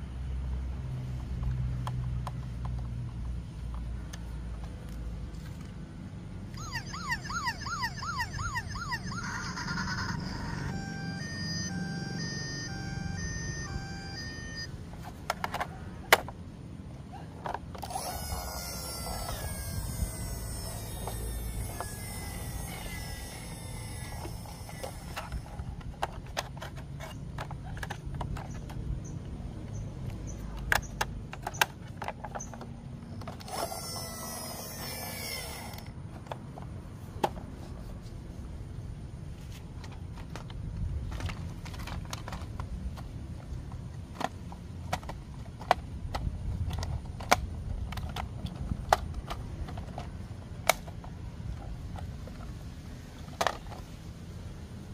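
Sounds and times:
plastic toy clicks and knocks: 15.0 - 16.4, 17.4 - 28.9, 30.5 - 37.4, 39.8 - 52.5, 53.3 - 53.9.

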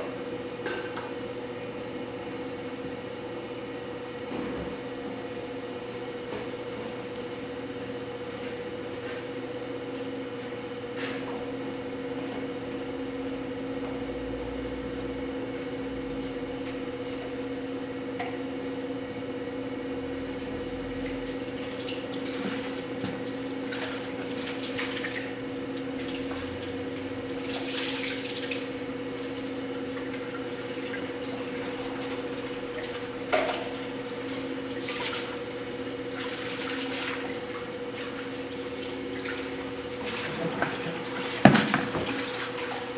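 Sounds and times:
potter's wheel humming: 10.1 - 42.9.

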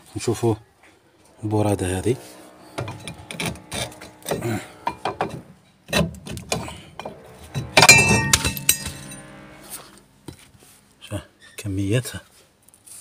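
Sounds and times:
metal brake drum clinking: 2.8 - 9.6.

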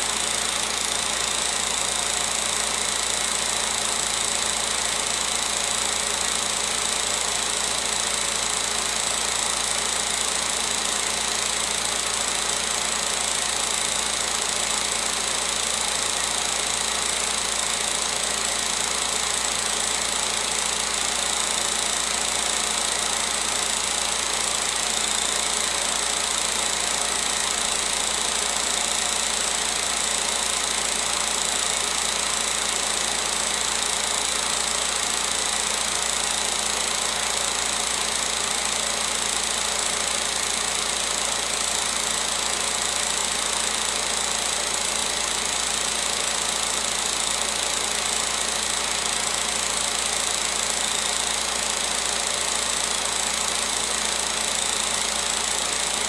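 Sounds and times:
film projector whirring: 0.0 - 56.0.

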